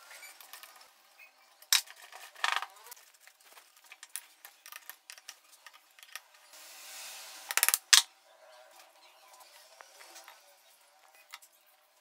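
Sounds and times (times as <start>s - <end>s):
metal parts clicking: 3.9s - 6.2s.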